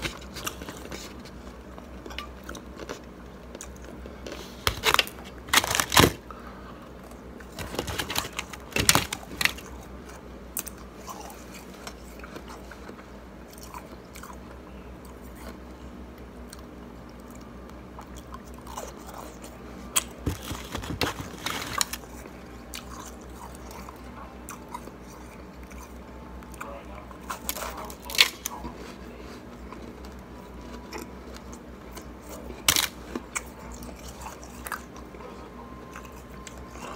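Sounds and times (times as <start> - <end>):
chewing shaved ice: 16.4 - 36.9.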